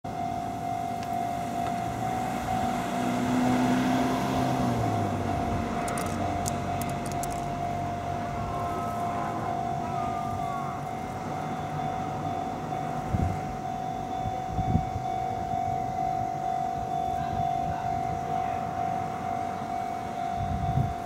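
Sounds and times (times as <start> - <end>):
level crossing alarm ringing: 0.0 - 21.0
car passing by: 1.9 - 6.4.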